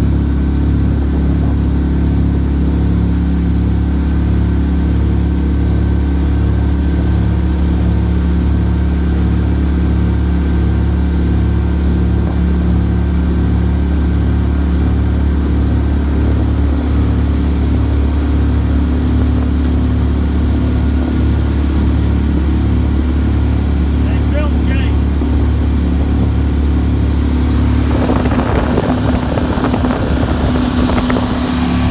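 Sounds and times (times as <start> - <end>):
boat motor droning: 0.0 - 31.9.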